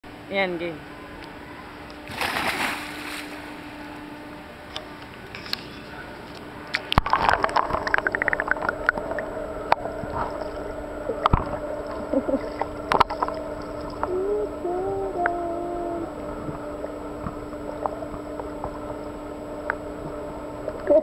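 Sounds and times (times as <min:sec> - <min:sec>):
steady low hum: 0:00.0 - 0:21.0
underwater bubbling and gurgling: 0:06.9 - 0:21.0.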